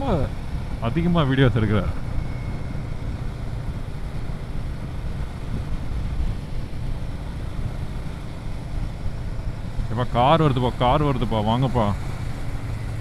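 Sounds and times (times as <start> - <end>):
motorcycle engine rumble: 0.0 - 13.0
wind buffeting microphone: 2.0 - 9.9.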